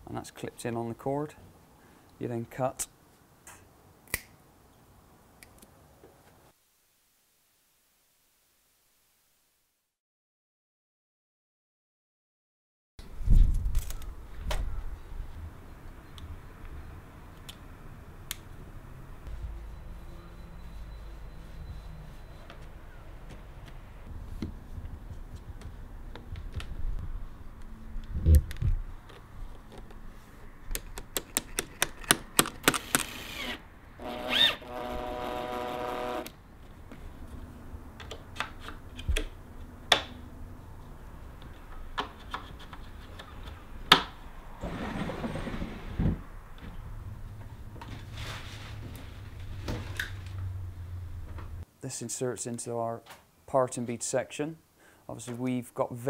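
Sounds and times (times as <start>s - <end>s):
hand tools tapping and clicking: 30.7s - 32.9s
cordless drill driving a screw: 32.6s - 36.3s.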